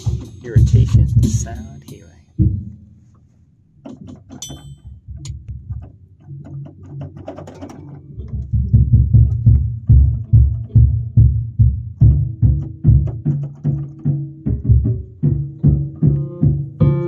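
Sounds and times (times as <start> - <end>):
electronic keyboard low beats: 0.0 - 3.4.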